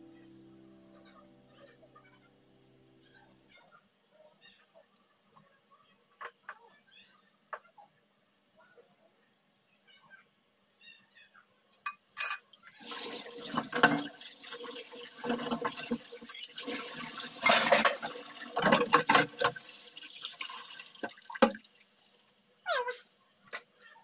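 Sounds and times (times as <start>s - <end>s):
food deep-frying in bubbling oil: 12.6s - 22.3s.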